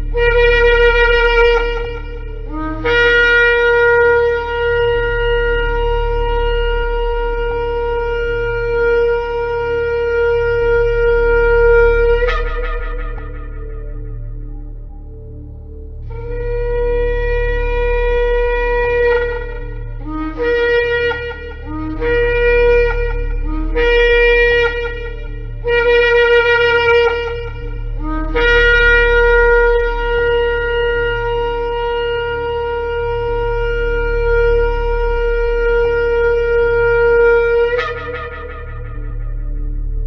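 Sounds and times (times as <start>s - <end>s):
shofar blasts: 0.0s - 40.0s.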